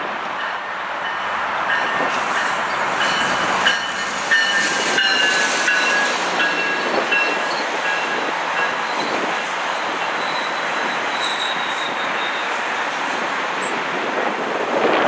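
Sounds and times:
train rolling past: 0.0 - 15.0
wheel squeals: 10.1 - 12.6.

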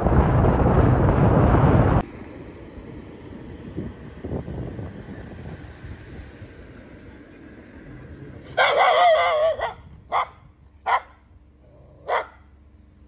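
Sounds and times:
dog barking: 8.5 - 11.2, 12.0 - 12.5
dog yelping: 8.5 - 11.2, 12.0 - 12.4.

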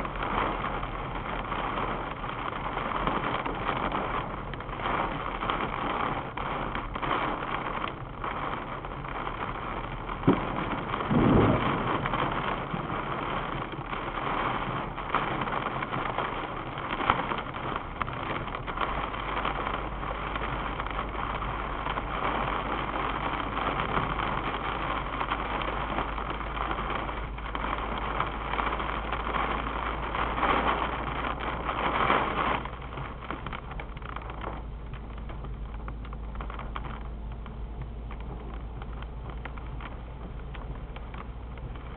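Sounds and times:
rain beating on car: 0.0 - 41.9
thunder crack and rumble: 0.0 - 41.9
tyre and road noise: 0.0 - 41.9.

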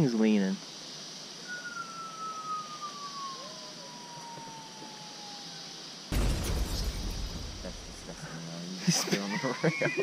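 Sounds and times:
insects hissing: 0.0 - 10.0
falling whistle: 1.4 - 5.6
loud burst of noise: 6.1 - 8.4.

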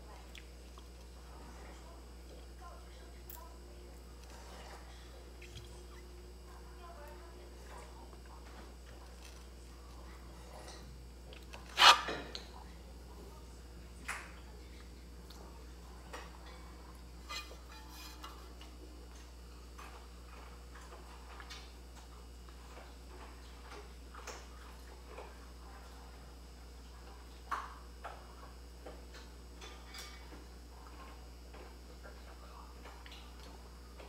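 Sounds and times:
steady low hum: 0.0 - 34.0
mouth eating clicks and smacks: 0.2 - 1.1.

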